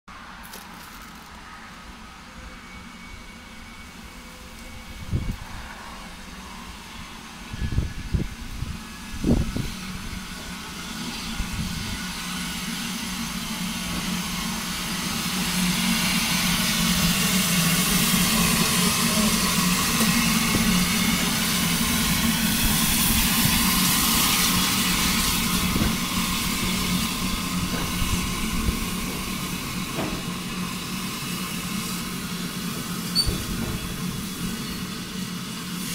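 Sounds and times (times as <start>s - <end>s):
steam locomotive hiss: 1.3s - 35.9s.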